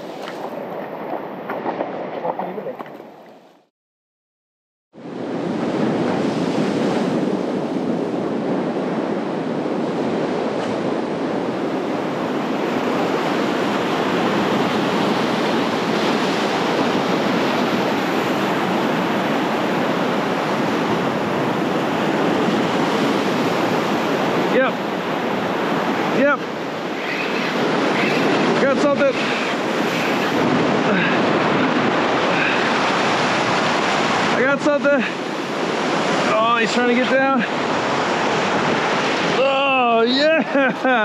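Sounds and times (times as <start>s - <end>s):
surf breaking over rocks: 13.8s - 41.0s.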